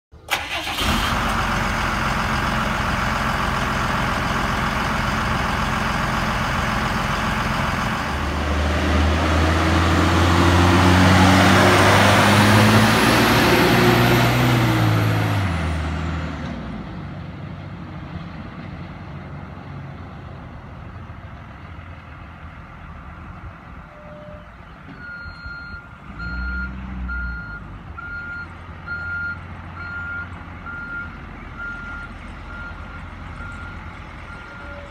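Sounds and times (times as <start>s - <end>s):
diesel truck engine: 0.1s - 34.9s
reversing alarm beeping: 23.9s - 34.9s.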